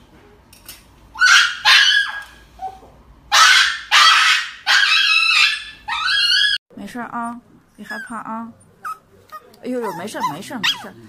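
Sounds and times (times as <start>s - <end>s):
small dog screaming: 1.2s - 6.6s, 8.9s - 11.0s.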